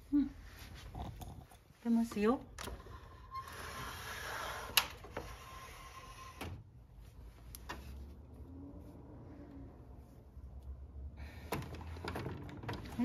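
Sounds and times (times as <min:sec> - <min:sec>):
sliding door rolling on track: 0:02.7 - 0:06.6.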